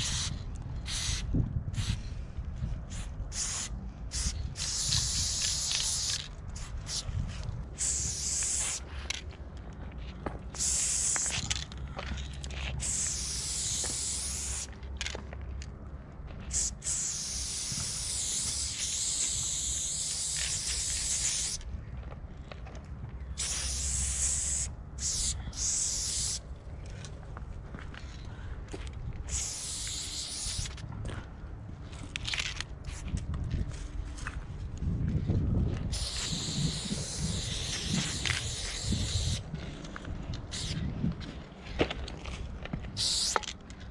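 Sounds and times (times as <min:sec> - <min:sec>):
spray paint can hissing: 0:00.0 - 0:02.1, 0:02.9 - 0:09.2, 0:10.5 - 0:11.8, 0:12.5 - 0:14.8, 0:16.4 - 0:21.7, 0:23.4 - 0:26.4, 0:29.3 - 0:30.8, 0:35.9 - 0:39.4, 0:40.5 - 0:40.8, 0:43.0 - 0:43.6.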